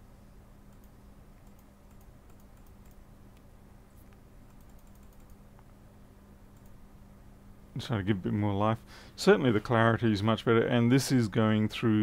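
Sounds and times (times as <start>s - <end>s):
low electrical hum: 0.0s - 12.0s
computer keyboard typing: 0.7s - 3.0s, 4.5s - 5.4s.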